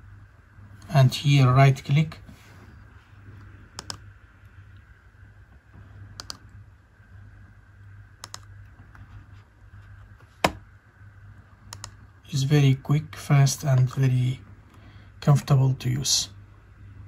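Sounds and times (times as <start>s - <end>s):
low hum: 0.0s - 17.0s
mouse buttons clicking: 3.7s - 4.0s, 6.2s - 6.4s, 8.2s - 8.5s, 11.7s - 12.0s.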